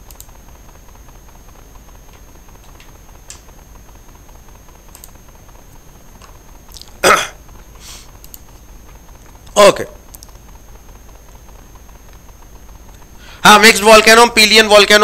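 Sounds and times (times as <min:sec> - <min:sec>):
faint light clicks: 0:04.9 - 0:05.2, 0:08.2 - 0:09.0.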